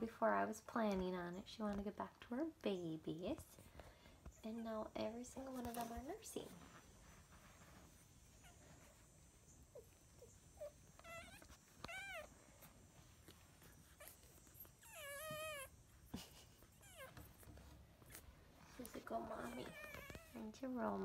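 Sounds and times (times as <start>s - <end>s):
puppies squeaking: 8.2s - 18.3s, 19.2s - 20.4s
puppy whimpering: 8.4s - 9.0s, 9.6s - 18.3s, 19.2s - 20.4s.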